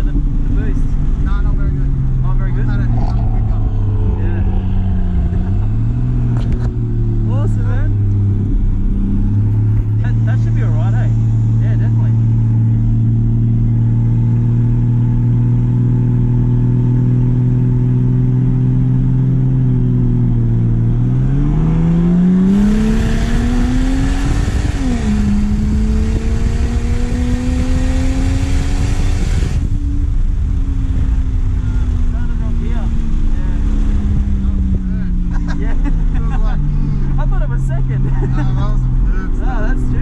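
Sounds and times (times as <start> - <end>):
car engine accelerating: 0.0 - 40.0
wind and exhaust rush: 0.0 - 40.0.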